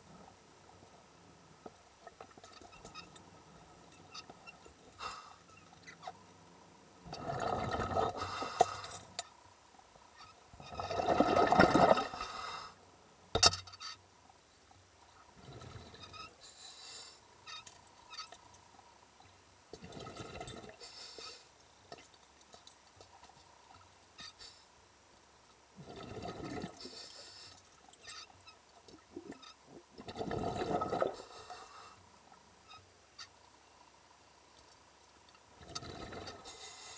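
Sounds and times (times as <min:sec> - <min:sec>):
water bubbling and gurgling: 0:07.0 - 0:08.2, 0:10.6 - 0:12.2, 0:19.8 - 0:20.8, 0:25.8 - 0:26.9, 0:28.8 - 0:31.3, 0:35.6 - 0:36.4
water gurgling and sloshing: 0:07.0 - 0:09.4, 0:10.2 - 0:12.4, 0:14.8 - 0:16.4, 0:17.4 - 0:20.9, 0:25.7 - 0:33.3, 0:35.4 - 0:36.9.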